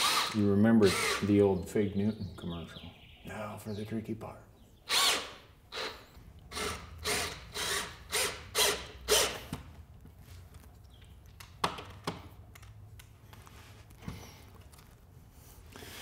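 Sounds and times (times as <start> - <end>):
cordless drill bursts: 0.0 - 1.3, 4.9 - 9.5
sharp clicks and knocks: 10.8 - 13.2.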